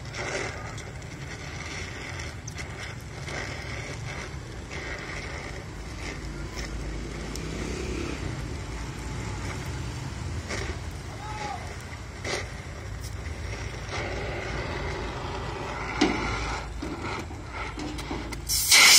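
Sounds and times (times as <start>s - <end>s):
torch crackles: 0.0s - 18.9s
welding torch flame hissing: 16.5s - 18.9s.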